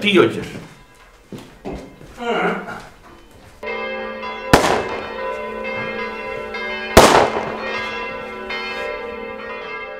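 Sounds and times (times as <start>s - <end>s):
church bells ringing: 3.1s - 9.9s
firecracker bangs: 4.5s - 5.3s, 7.0s - 7.9s.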